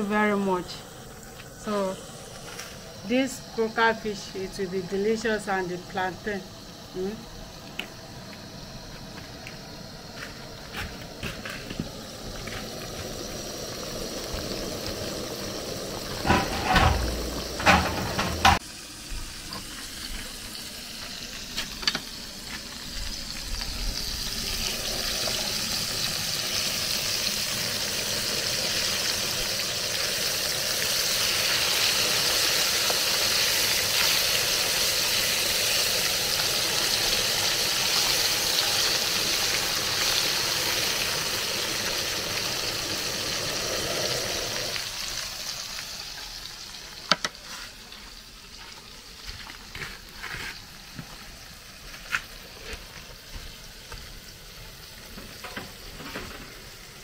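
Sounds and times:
fish frying in hot oil: 0:00.0 - 0:57.0
loud knocks and clatters: 0:16.2 - 0:18.6.

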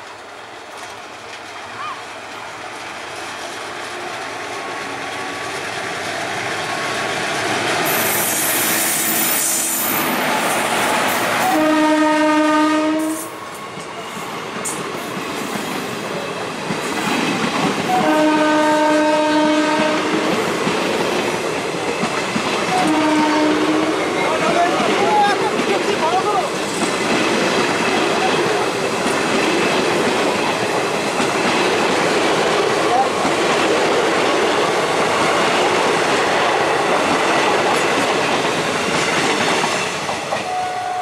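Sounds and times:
train wheels clattering on rails: 0:00.0 - 0:11.8, 0:13.0 - 0:40.8
locomotive horn blast: 0:11.4 - 0:13.3, 0:17.9 - 0:20.3, 0:22.7 - 0:24.2, 0:40.4 - 0:41.0.

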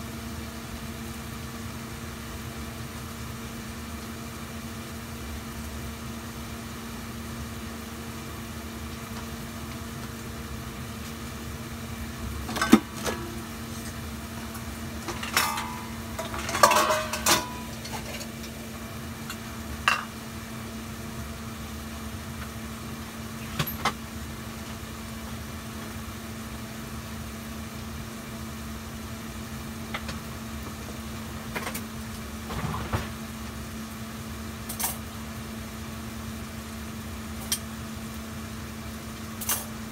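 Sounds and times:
gas stove burner humming: 0:00.0 - 0:39.9
kitchenware clinking: 0:12.5 - 0:13.5, 0:15.0 - 0:18.6, 0:19.3 - 0:20.2.

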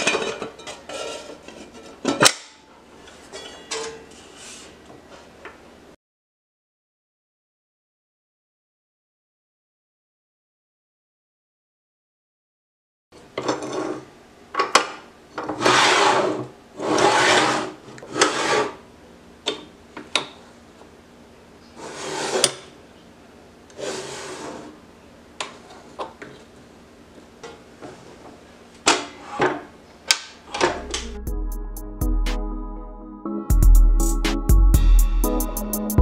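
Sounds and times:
sliding scrapes: 0:00.0 - 0:02.0, 0:03.0 - 0:05.3, 0:15.5 - 0:18.8, 0:21.8 - 0:22.6, 0:23.8 - 0:24.8.

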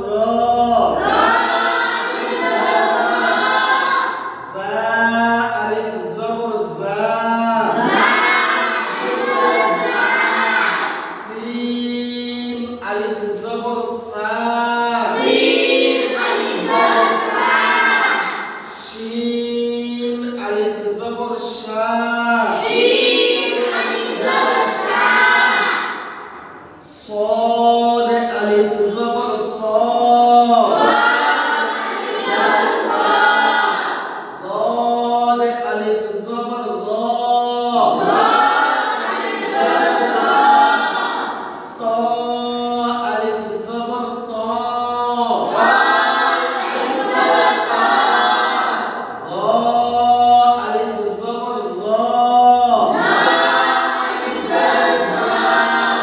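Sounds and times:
boys chanting in unison: 0:00.0 - 0:56.0.

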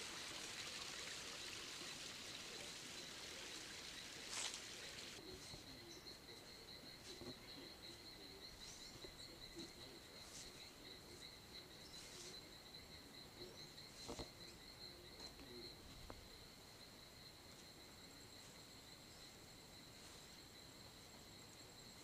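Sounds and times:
crickets trilling: 0:00.0 - 0:22.0.

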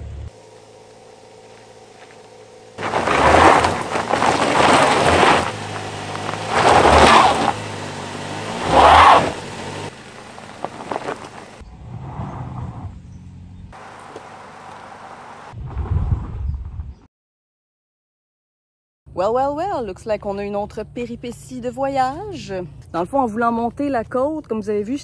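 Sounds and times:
van engine revving hard: 0:02.8 - 0:13.9.

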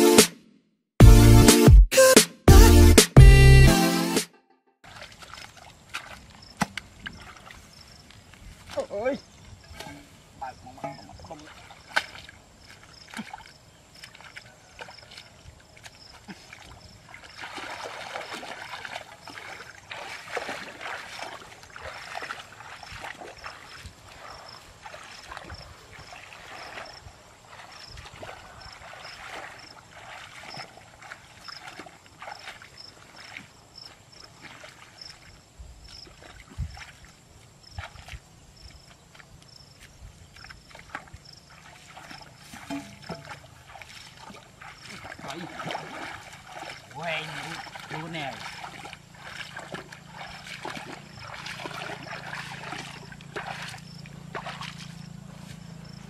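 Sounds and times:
legs wading through water: 0:04.8 - 0:56.0
insect chirping: 0:05.0 - 0:56.0.

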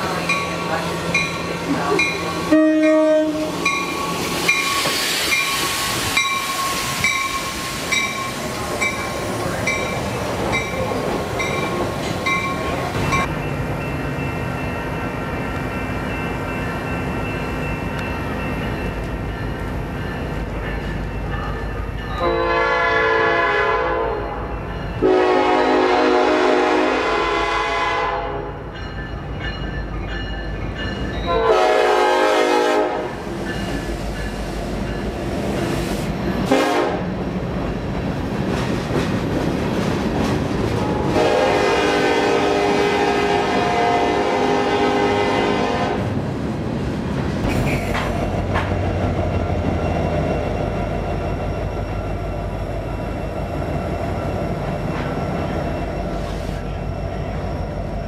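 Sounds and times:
locomotive air horn blasts: 0:02.5 - 0:03.7, 0:22.2 - 0:24.4, 0:25.0 - 0:28.6, 0:31.3 - 0:33.2, 0:36.5 - 0:37.1, 0:40.8 - 0:46.1.

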